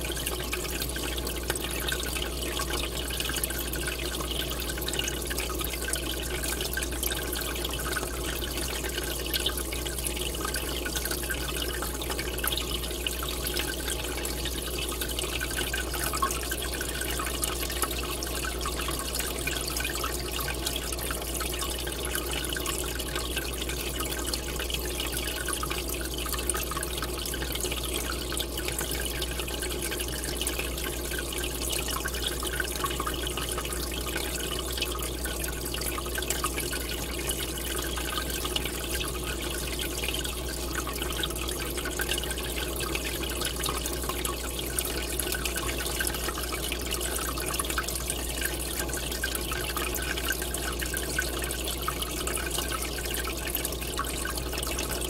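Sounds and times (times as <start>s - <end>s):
aquarium water splashing: 0.0s - 55.0s.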